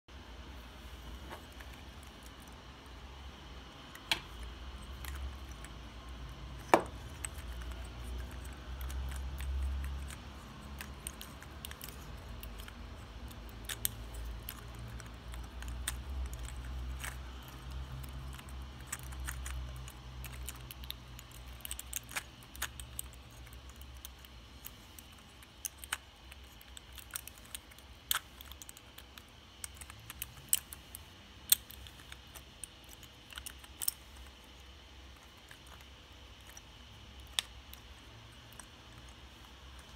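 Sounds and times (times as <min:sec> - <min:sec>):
plastic model clicking in hands: 0:06.7 - 0:34.3.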